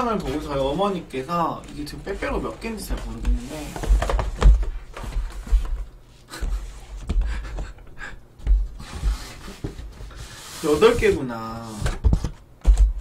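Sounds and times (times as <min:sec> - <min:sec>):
cardboard rustling: 0:08.7 - 0:13.0.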